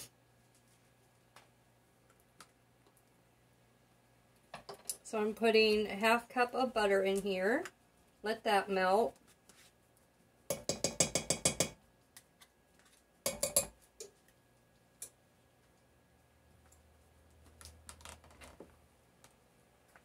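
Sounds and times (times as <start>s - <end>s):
metal spoon tapping plastic cup: 10.5s - 11.8s, 13.3s - 13.7s.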